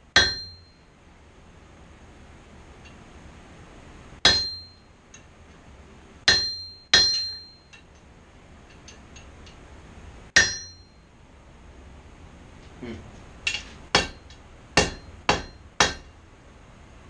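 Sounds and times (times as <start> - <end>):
hammer striking hot metal: 0.1 - 0.8, 4.2 - 5.2, 6.3 - 7.8, 10.4 - 11.0, 13.5 - 16.1.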